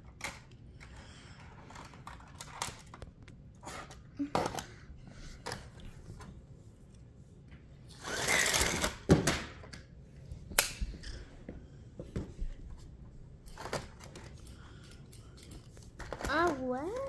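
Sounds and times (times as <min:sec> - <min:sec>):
toy slot car whirring: 0:07.9 - 0:09.1.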